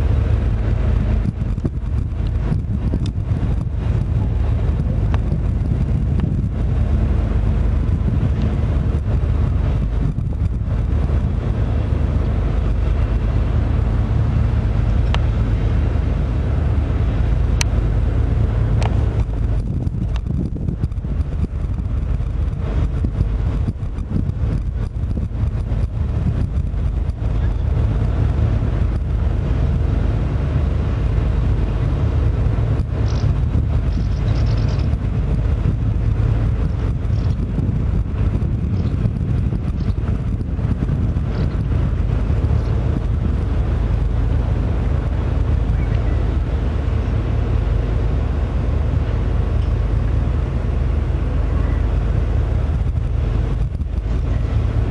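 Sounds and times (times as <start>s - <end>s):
wind buffeting microphone: 0.0s - 54.9s.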